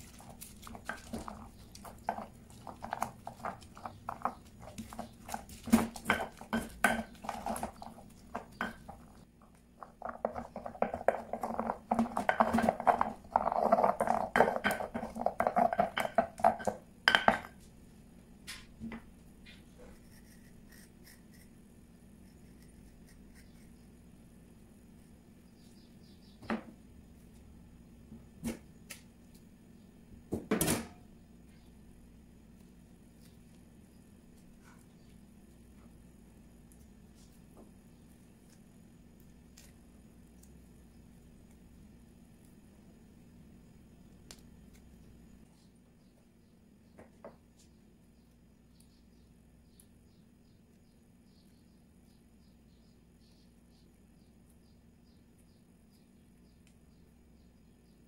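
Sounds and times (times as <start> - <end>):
stone pestle grinding and pounding: 0.0 - 17.6.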